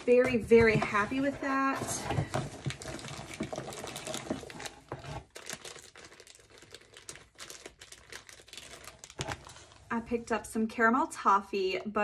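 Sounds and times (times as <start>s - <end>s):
plastic packaging crinkling: 0.8s - 9.9s.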